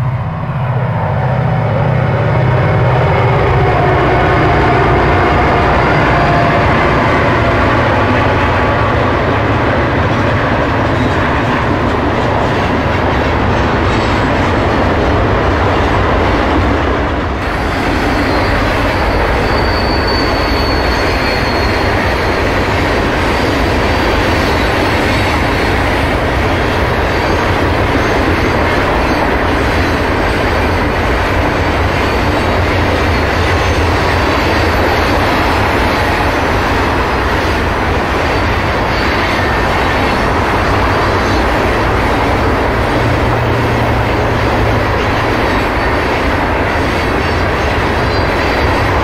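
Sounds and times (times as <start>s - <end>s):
high-pitched wheel squeal: 17.5s - 25.8s.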